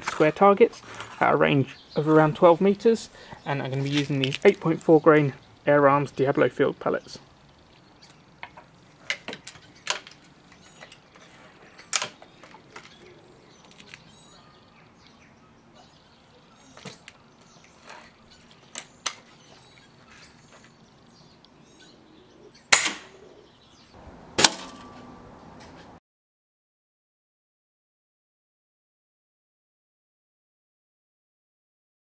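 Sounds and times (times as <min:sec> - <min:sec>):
birds chirping: 0:00.0 - 0:26.0
air rifle shot: 0:22.7 - 0:23.2, 0:24.4 - 0:24.8.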